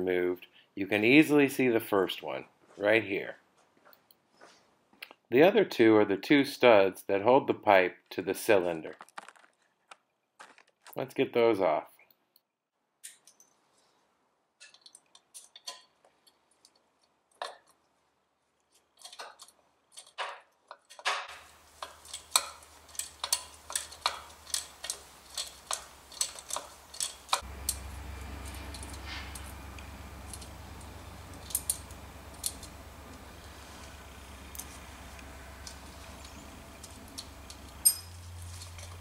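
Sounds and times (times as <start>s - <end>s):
wrench clicking: 20.9s - 29.6s
low steady hum: 21.3s - 39.0s.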